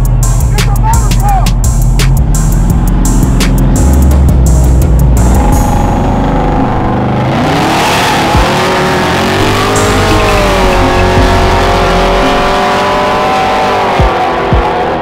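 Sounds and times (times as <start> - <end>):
car engine revving high: 1.5 - 15.0
tyre squeal: 9.6 - 12.5.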